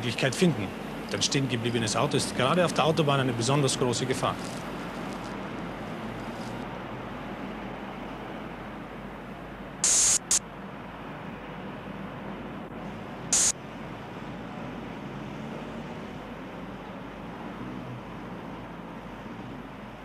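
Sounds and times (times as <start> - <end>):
traffic hum: 0.0 - 20.0
compressed air hissing: 9.8 - 10.4, 13.3 - 13.5
soundtrack hiss: 9.8 - 10.4, 13.3 - 13.6.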